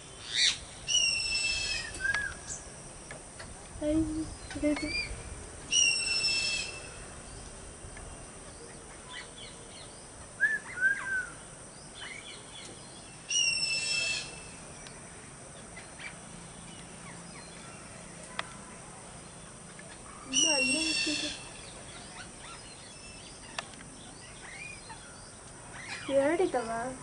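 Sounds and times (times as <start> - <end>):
parrot harsh calls: 5.7 - 7.0, 13.3 - 14.5, 20.3 - 23.3.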